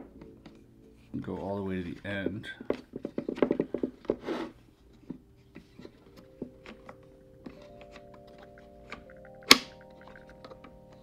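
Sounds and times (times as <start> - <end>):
quiet background music: 0.0 - 11.0
wooden piece scraping slide: 3.3 - 4.6.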